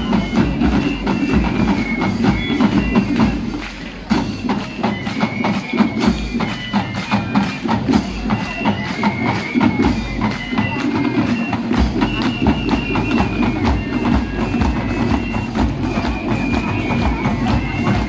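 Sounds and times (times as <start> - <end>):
drums beating quick strokes: 0.0 - 18.0
high wind instrument melody: 0.0 - 18.0.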